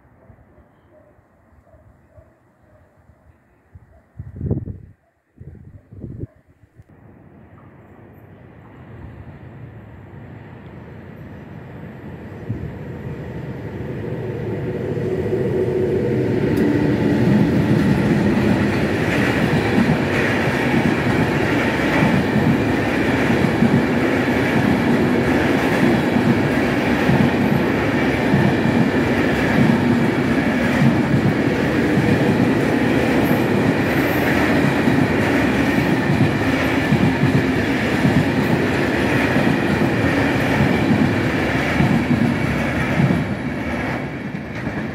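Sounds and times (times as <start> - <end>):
train wheels clattering over rails: 16.5 - 44.9.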